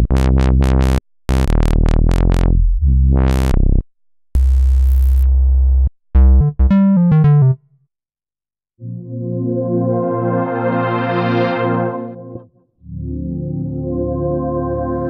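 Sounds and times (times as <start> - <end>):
held bright synth chord: 8.8 - 12.4.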